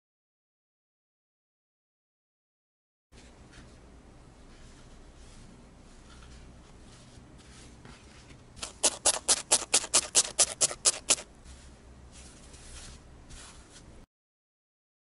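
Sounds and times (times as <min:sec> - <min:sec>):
felting needle stabbing sponge: 0:08.6 - 0:11.3.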